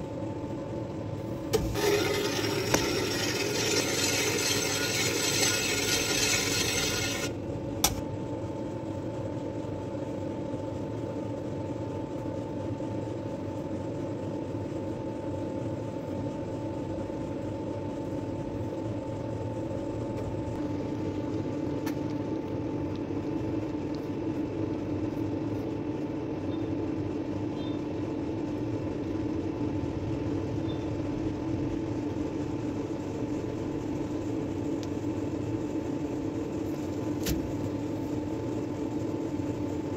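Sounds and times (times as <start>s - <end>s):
mechanical hum with whine: 0.0s - 39.9s
scraping noise: 1.7s - 7.3s.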